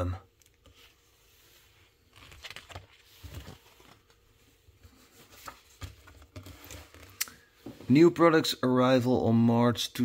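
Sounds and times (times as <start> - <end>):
magazine pages rustling: 0.6 - 8.0.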